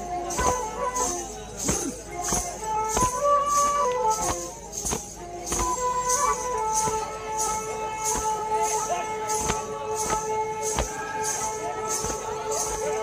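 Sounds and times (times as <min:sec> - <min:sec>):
drum beat: 0:01.6 - 0:06.0.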